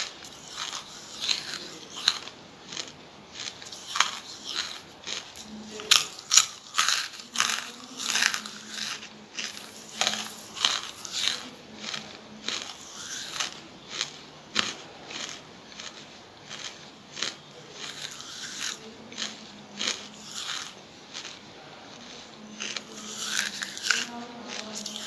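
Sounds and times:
charcoal crunching as chewed: 0.0s - 25.0s.

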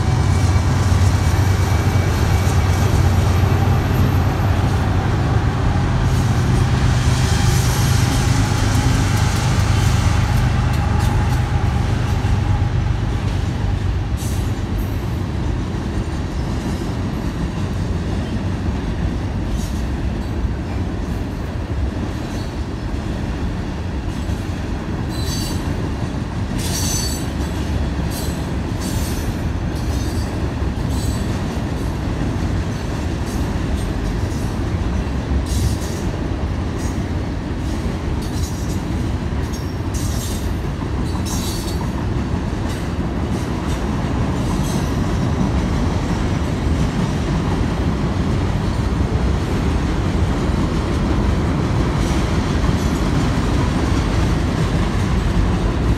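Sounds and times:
high squeals of train wheels: 0.0s - 15.3s, 22.2s - 23.0s, 24.1s - 26.0s, 26.6s - 32.0s, 32.7s - 36.1s, 36.8s - 42.1s, 44.4s - 45.6s
train rumbling across bridge: 0.0s - 55.9s.

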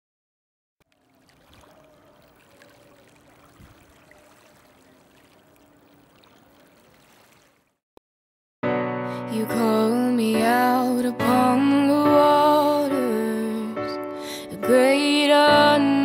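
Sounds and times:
small water splashes: 0.8s - 7.8s
water lapping on shore: 0.8s - 7.8s.

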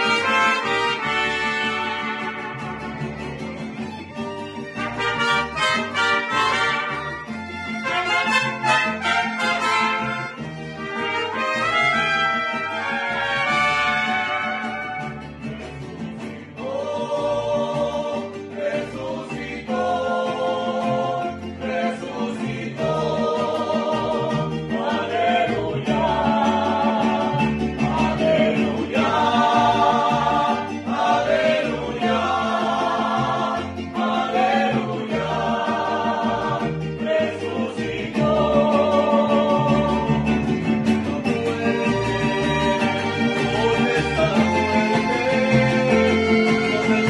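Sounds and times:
men singing with vibrato: 0.0s - 2.9s, 4.9s - 15.2s, 16.1s - 47.0s
trumpets: 0.0s - 3.1s, 4.8s - 15.4s
strummed guitars: 0.0s - 47.0s
plucked bass line: 11.9s - 47.0s.

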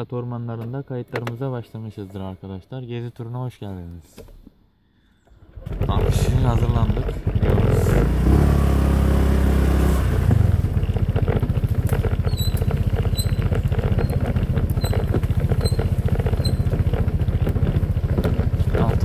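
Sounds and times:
scooter engine running: 5.4s - 19.0s.

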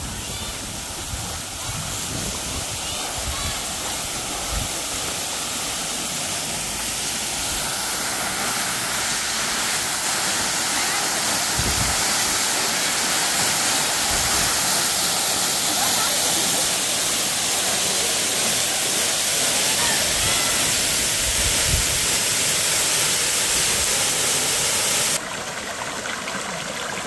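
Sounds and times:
waterfall crashing onto rocks: 0.0s - 25.2s.

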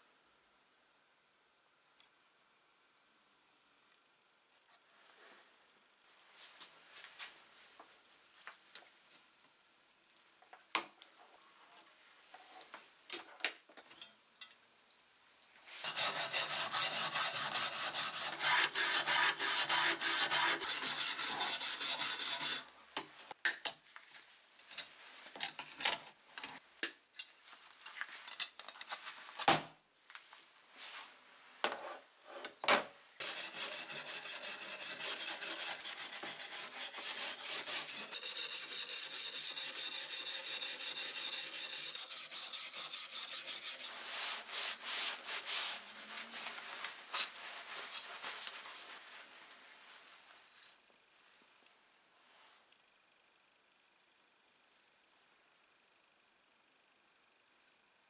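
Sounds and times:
wire brush scrubbing metal blade: 15.8s - 22.7s, 33.2s - 43.9s.

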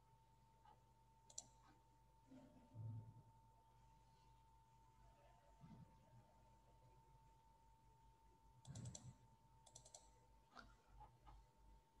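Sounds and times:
faint steady hum: 0.0s - 12.0s
faint computer clicks: 1.3s - 1.8s, 8.6s - 11.4s.

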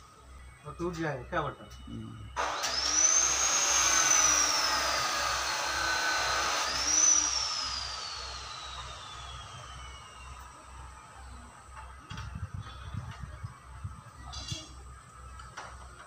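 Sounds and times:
power tool motor whining: 2.4s - 11.2s.

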